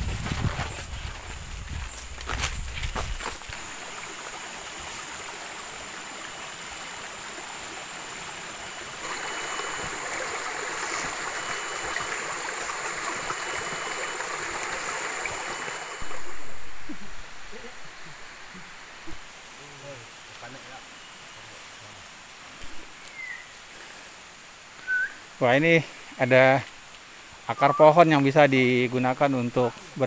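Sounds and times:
stream trickling over rocks: 0:00.5 - 0:20.3.

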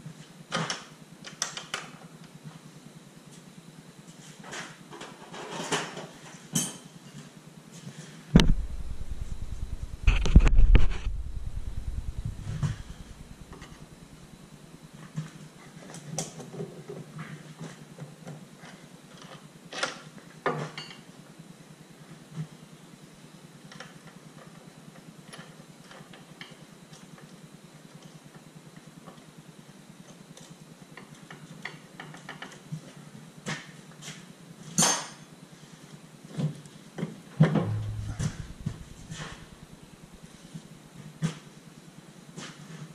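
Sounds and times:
steady low hum: 0:08.3 - 0:15.2, 0:37.4 - 0:41.0.

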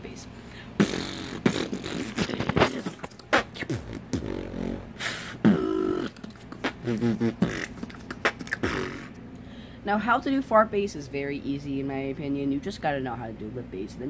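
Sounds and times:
buzzing lip bass: 0:00.6 - 0:09.2
beatbox kick and snare: 0:00.8 - 0:09.2.

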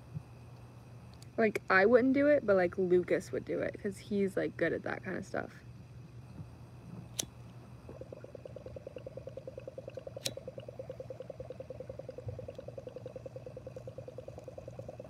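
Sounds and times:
water bong bubbling: 0:07.4 - 0:15.0.

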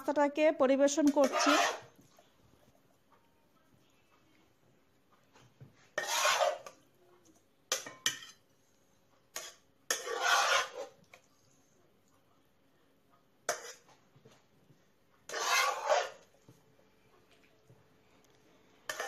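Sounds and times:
spoon scraping pan: 0:00.9 - 0:02.3, 0:05.3 - 0:06.9, 0:07.7 - 0:11.8, 0:13.4 - 0:14.5, 0:15.2 - 0:16.6, 0:18.8 - 0:19.0.

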